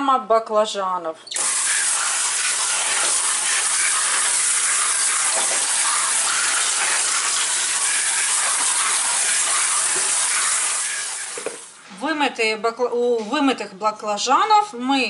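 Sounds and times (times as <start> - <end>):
faucet water splashing on vegetables: 1.3 - 11.8.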